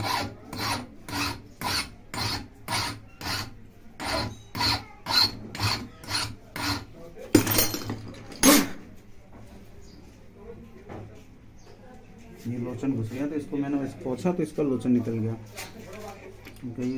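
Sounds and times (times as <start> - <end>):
file rasping on metal: 0.0 - 7.0.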